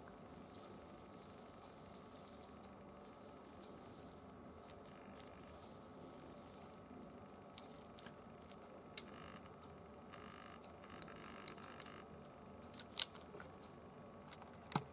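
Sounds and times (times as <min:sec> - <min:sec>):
faint hiss: 0:00.0 - 0:10.5.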